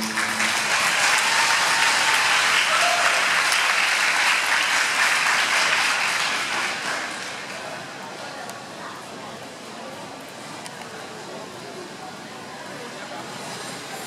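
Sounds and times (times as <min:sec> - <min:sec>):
program music: 0:00.0 - 0:01.9
audience applauding: 0:00.0 - 0:07.9.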